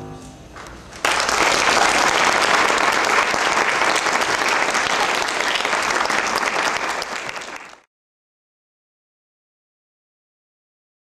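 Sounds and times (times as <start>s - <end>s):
audience applause: 0.6s - 7.9s.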